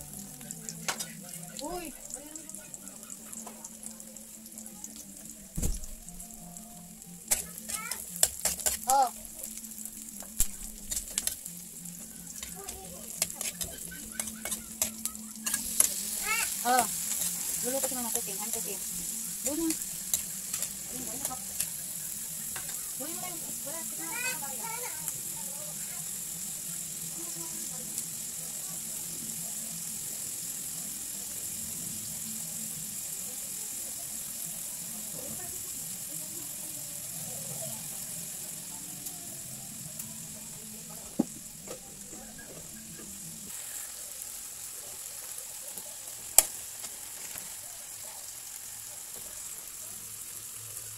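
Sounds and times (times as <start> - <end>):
onion and garlic sizzling in oil: 0.0 - 50.9
metal spatula scraping wok: 7.3 - 8.9, 10.6 - 11.5, 12.3 - 23.2.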